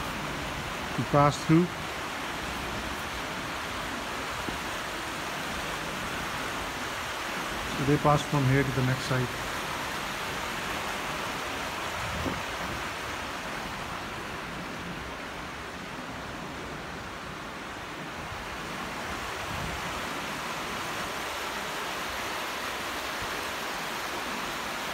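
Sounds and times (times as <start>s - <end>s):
creek water running over stones: 0.0s - 24.9s.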